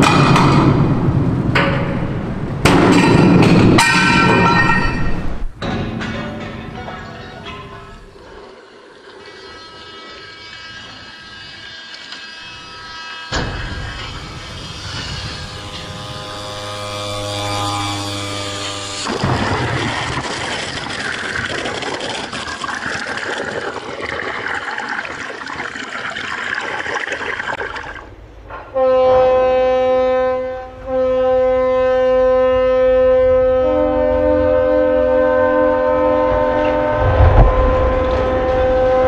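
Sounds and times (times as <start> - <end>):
ship horn: 12.4 - 19.4, 28.5 - 39.0
hull grinding on launch ways: 19.0 - 24.2, 36.7 - 39.0
water splashing: 19.1 - 28.1.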